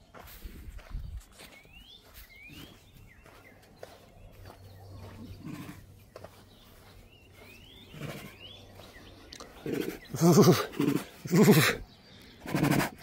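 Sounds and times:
faint bird chirps: 0.8s - 5.6s
tiger chuffing: 9.3s - 11.8s, 12.4s - 13.0s.

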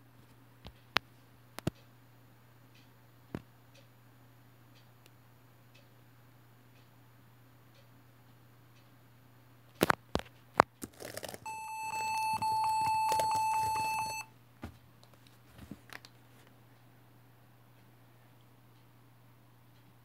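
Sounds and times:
laptop high electronic beep: 11.5s - 14.3s.

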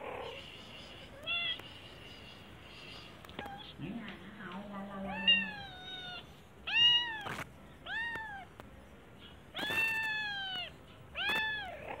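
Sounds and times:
kitten meowing: 5.1s - 8.5s, 9.5s - 12.0s.

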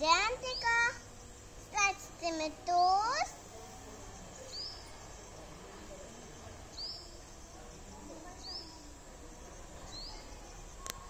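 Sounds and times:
bird chirping: 4.0s - 5.2s, 6.4s - 7.4s, 8.3s - 9.0s, 9.8s - 11.0s.

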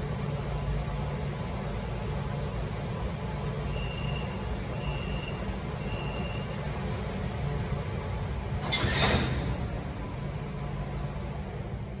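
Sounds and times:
train rumbling at platform: 0.0s - 12.0s
high warning beeps: 3.7s - 6.6s.

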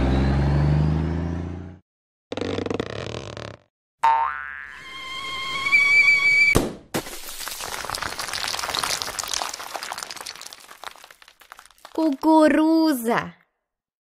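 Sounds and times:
cartoon whistle-like tone: 4.8s - 6.6s
egg shattering crack: 7.0s - 12.2s
glassy crackling of scattering pieces: 7.0s - 12.2s.

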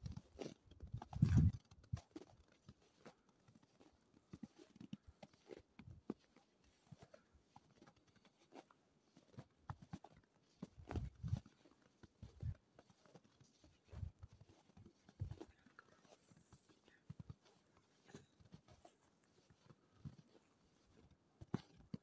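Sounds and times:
footsteps crunching in snow: 10.6s - 21.8s.

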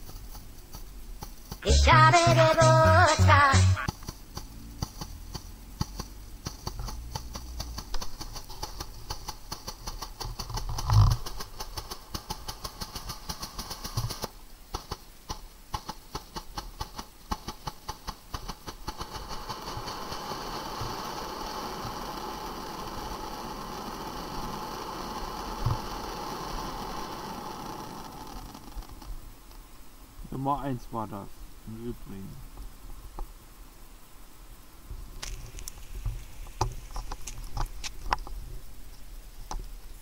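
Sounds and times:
firework fountain crackling: 1.2s - 29.2s
firework fountain hissing: 7.4s - 29.2s.

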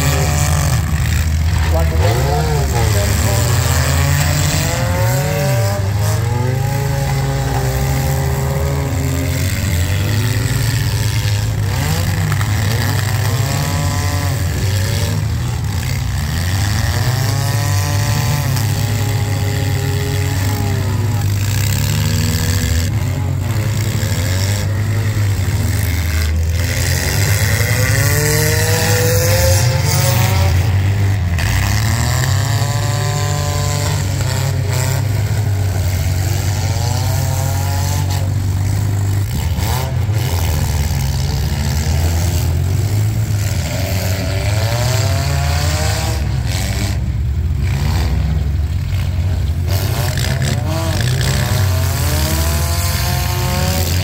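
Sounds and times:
steady low drone: 0.0s - 37.6s
car engines revving: 0.0s - 54.0s.

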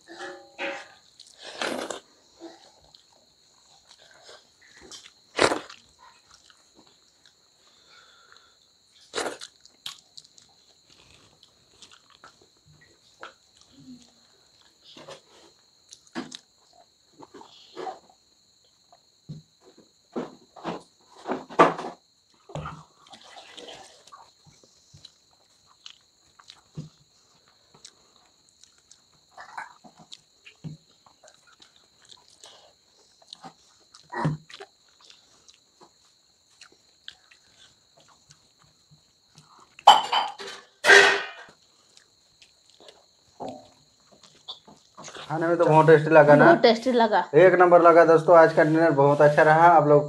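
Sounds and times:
crickets chirring: 0.0s - 50.0s
chewing: 1.0s - 19.0s, 22.4s - 39.9s, 41.5s - 45.3s.

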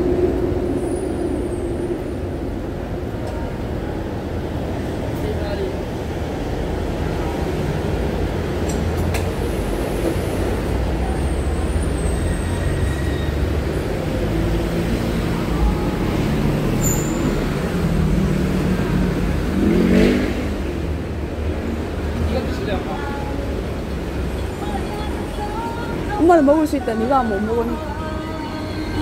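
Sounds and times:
motor vehicle rumble: 0.0s - 29.0s.

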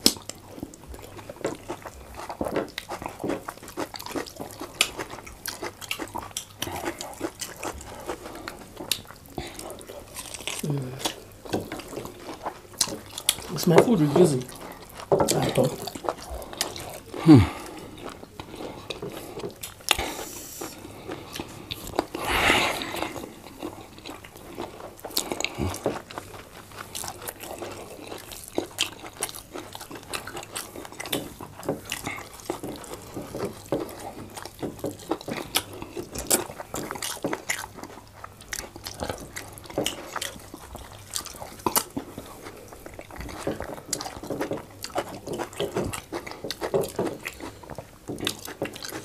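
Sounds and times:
chewing and lip smacks: 0.0s - 49.0s
breathy rush: 17.2s - 17.8s.

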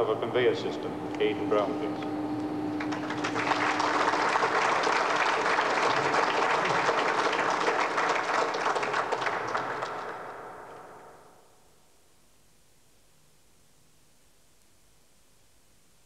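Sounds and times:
crowd applauding: 2.7s - 11.3s.

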